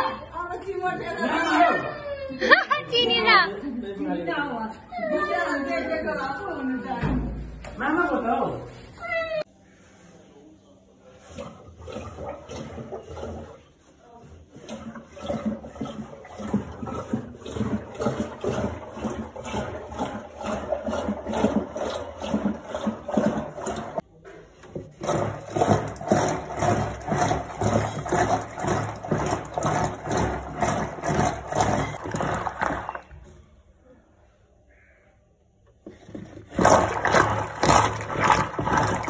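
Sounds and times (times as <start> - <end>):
churning stick sloshing curds: 11.0 - 33.3, 35.8 - 39.0.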